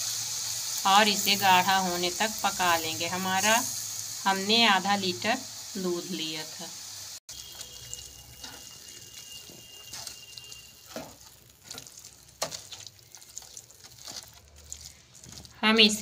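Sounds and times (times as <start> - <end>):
spatula scraping in wet pan: 7.3 - 15.6
milk simmering: 7.3 - 16.0.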